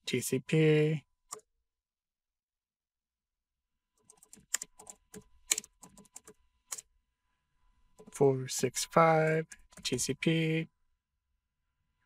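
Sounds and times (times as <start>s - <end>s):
computer keyboard typing: 4.0s - 6.9s, 7.9s - 10.1s.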